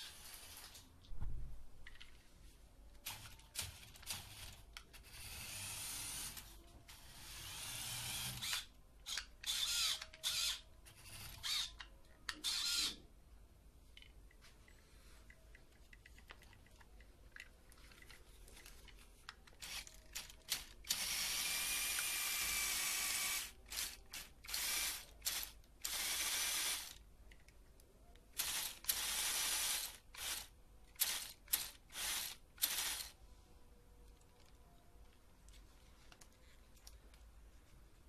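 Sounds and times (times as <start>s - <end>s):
toy motor and gears whirring: 0.0s - 0.8s, 3.0s - 13.0s, 19.5s - 27.0s, 28.4s - 33.2s.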